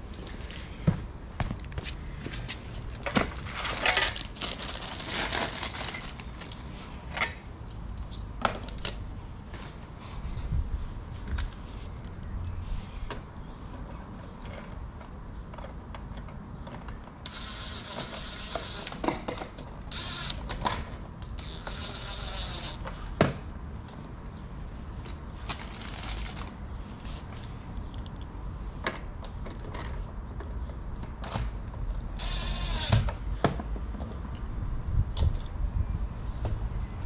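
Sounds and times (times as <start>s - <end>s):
cordless drill driving screws: 17.3s - 19.0s, 19.9s - 20.5s, 21.4s - 23.0s, 32.2s - 33.1s.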